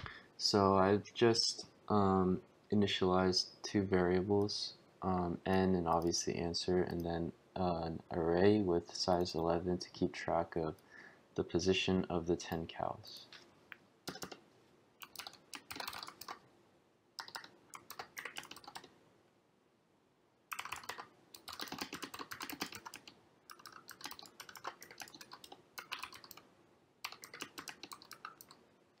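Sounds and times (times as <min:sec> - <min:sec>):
typing on computer keyboard: 0:14.1 - 0:14.4, 0:15.0 - 0:16.4, 0:17.2 - 0:18.9, 0:20.5 - 0:26.4, 0:27.0 - 0:28.6.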